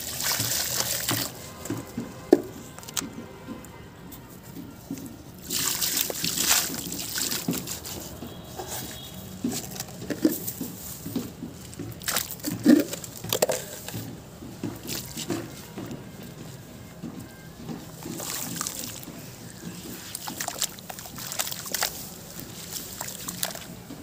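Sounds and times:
gritty material pouring into water: 0.0 - 1.4, 5.4 - 8.0, 18.0 - 19.1, 19.9 - 23.8
soft pops and trickles: 0.0 - 3.1, 4.9 - 16.4, 17.0 - 24.0.

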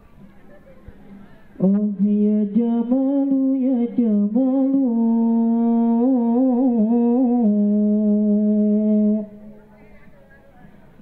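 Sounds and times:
person singing unaccompanied: 1.6 - 9.6.

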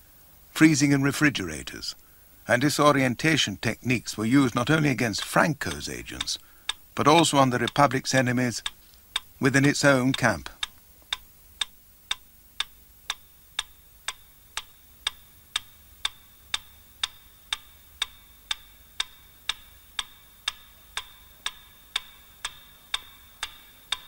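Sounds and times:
slow mechanical ticking: 3.9 - 24.0
faint steady high tone: 13.2 - 24.0.

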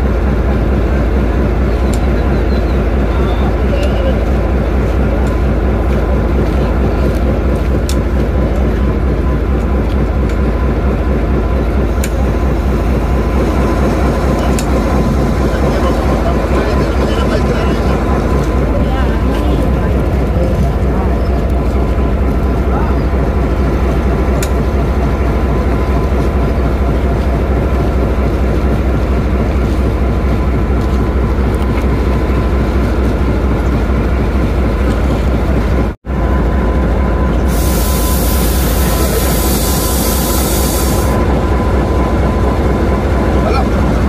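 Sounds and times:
diesel locomotive engine idling: 0.0 - 44.0
hiss: 37.5 - 41.2.

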